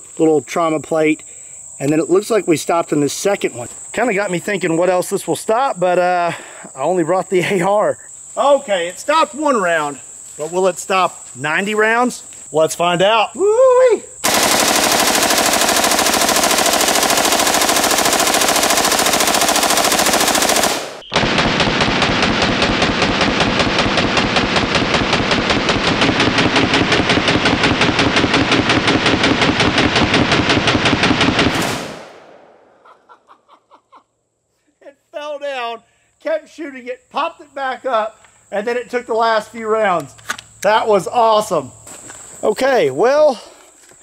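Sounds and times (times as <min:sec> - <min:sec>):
automatic rifle gunfire: 0:14.2 - 0:32.8.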